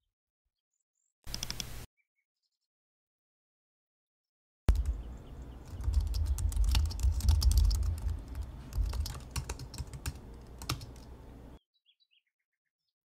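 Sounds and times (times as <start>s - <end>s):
keyboard typing: 1.3s - 1.9s, 4.7s - 11.2s.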